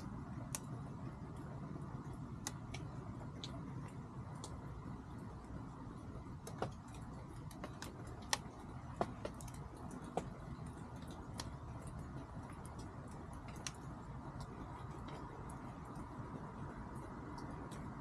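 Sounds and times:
low background noise: 0:00.0 - 0:18.0.

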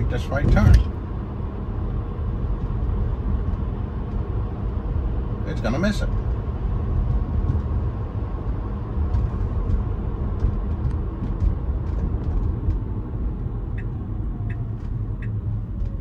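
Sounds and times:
tyre and road rumble: 0:00.0 - 0:16.0
light ticking: 0:13.7 - 0:15.4.

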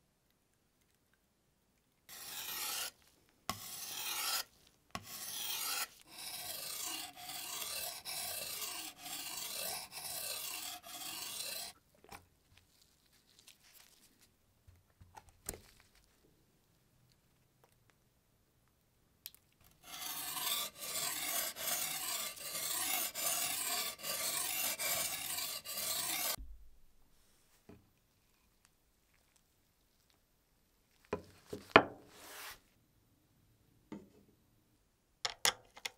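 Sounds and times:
blade rasping on whetstone: 0:02.1 - 0:11.8, 0:19.8 - 0:26.4.

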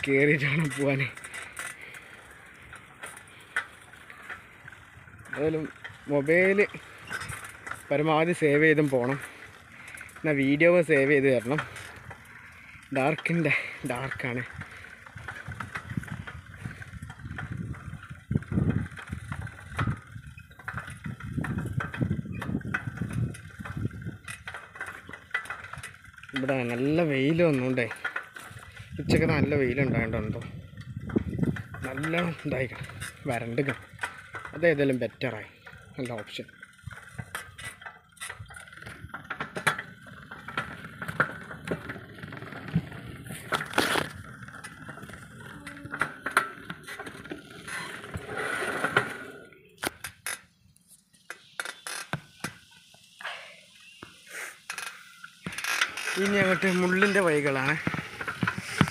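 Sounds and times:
bicycle rattling over bumps: 0:00.0 - 0:58.9
wind buffeting microphone: 0:14.0 - 0:26.3, 0:28.5 - 0:34.6, 0:56.2 - 0:58.9.

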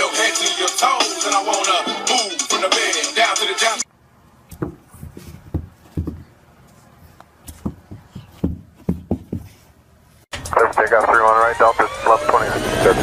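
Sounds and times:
hip hop music: 0:00.0 - 0:03.9, 0:10.3 - 0:13.0
dull thumps and knocks: 0:04.5 - 0:06.3, 0:07.5 - 0:09.6.

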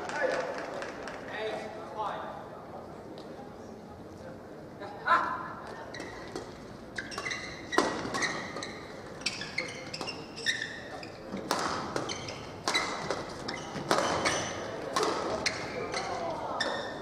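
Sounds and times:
shoes squeaking on court: 0:05.8 - 0:17.0.

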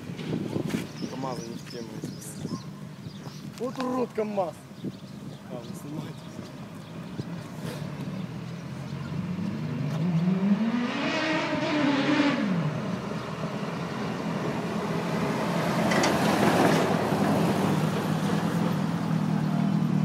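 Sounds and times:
tyre and road noise: 0:00.0 - 0:20.0
heavy truck engine: 0:12.4 - 0:20.0.

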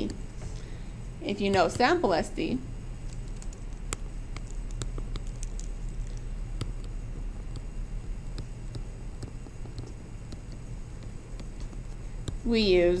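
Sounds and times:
low hum: 0:00.0 - 0:13.0
stylus tapping on tablet screen: 0:03.1 - 0:12.4.

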